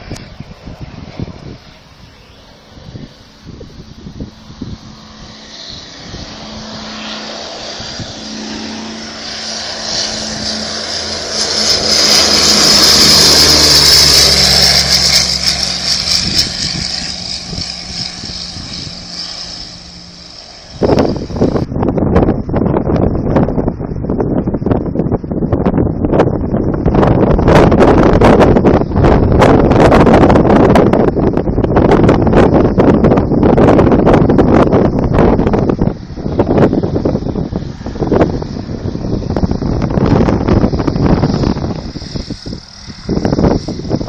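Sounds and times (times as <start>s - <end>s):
propeller aircraft passing overhead: 0.0s - 44.0s
wind buffeting microphone: 0.0s - 44.0s.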